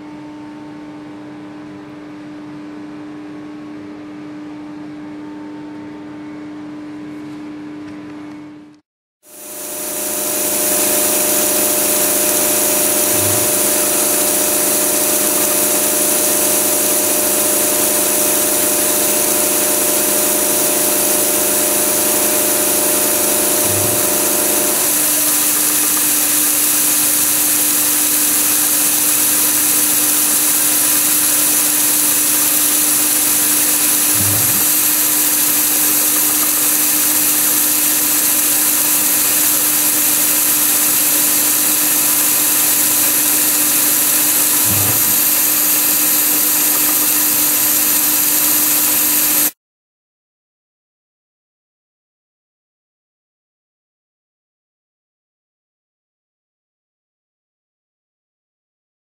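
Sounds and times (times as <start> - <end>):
milling machine humming: 9.3 - 49.6.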